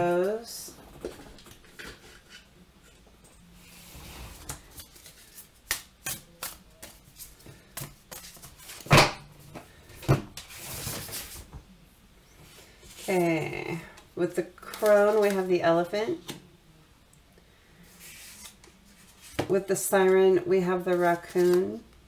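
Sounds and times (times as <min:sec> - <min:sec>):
cards being shuffled: 0:04.3 - 0:08.9, 0:18.0 - 0:19.5, 0:20.9 - 0:21.8.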